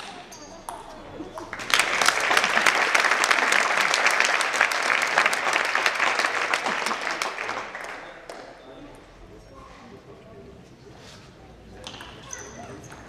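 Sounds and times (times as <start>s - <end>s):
audience applauding: 1.5s - 8.6s.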